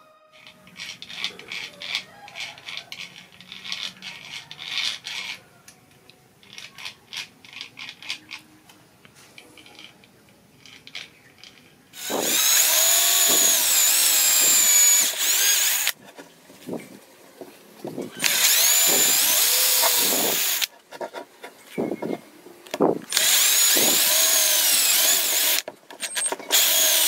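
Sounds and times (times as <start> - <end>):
gears clicking and rattling: 0.4 - 5.4, 6.4 - 8.4, 9.4 - 16.0, 17.9 - 20.7, 22.0 - 27.0
electric drill whining: 12.0 - 16.0, 18.2 - 20.7, 23.1 - 27.0.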